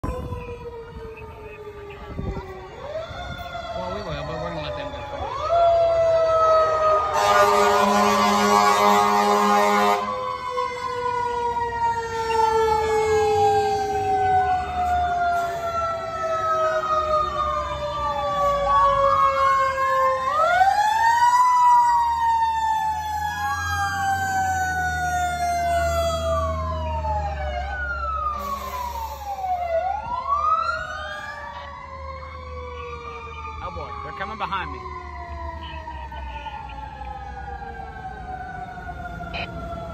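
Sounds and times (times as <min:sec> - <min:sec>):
siren wailing up and down: 0:00.0 - 0:39.9
siren winding down and up: 0:00.0 - 0:39.9
air horn blast: 0:07.1 - 0:10.2.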